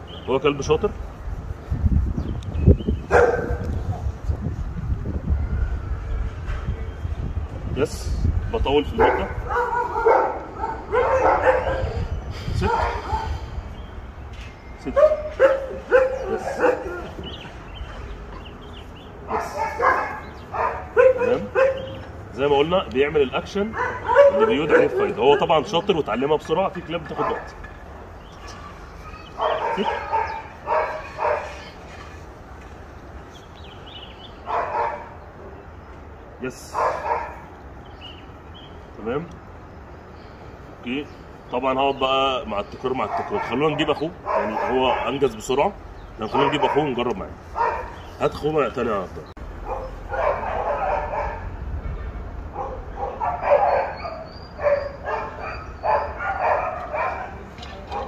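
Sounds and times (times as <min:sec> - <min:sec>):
puppy barking: 0:03.1 - 0:03.7, 0:09.0 - 0:13.4, 0:15.0 - 0:17.2, 0:19.3 - 0:22.0, 0:23.7 - 0:25.8, 0:27.2 - 0:27.6, 0:28.4 - 0:31.8, 0:34.4 - 0:35.2, 0:36.7 - 0:37.5, 0:43.0 - 0:45.2, 0:46.3 - 0:47.0, 0:47.6 - 0:48.1, 0:49.6 - 0:51.6, 0:52.5 - 0:58.0.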